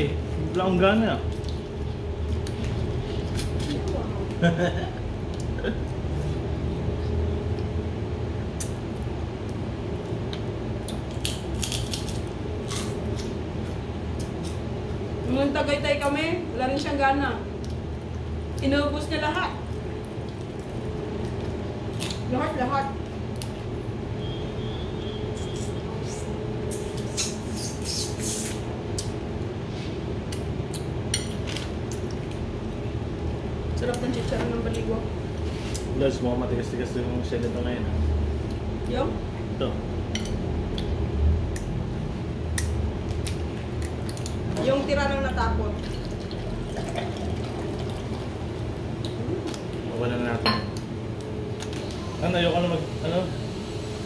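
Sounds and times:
steady low hum: 0:00.0 - 0:54.0
eating clicks and crunches: 0:08.5 - 0:13.4, 0:17.6 - 0:18.7, 0:30.3 - 0:32.5, 0:42.5 - 0:44.6
crab shells crunching: 0:11.0 - 0:13.3.

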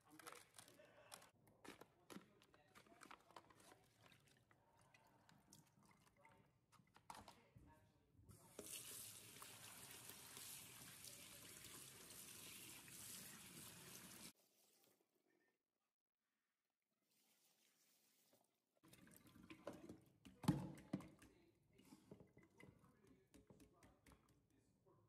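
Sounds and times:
noodles rinsed in strainer: 0:08.4 - 0:14.4.

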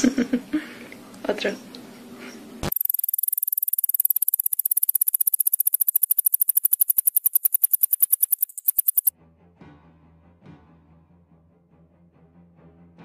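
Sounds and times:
mouse squeaking trill: 0:02.7 - 0:09.1.

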